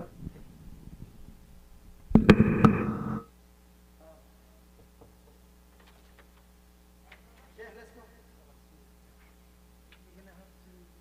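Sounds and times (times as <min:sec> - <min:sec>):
microphone handling rumble: 0:00.0 - 0:03.2
faint electrical hum: 0:00.0 - 0:11.0
microphone knocks: 0:02.1 - 0:03.2.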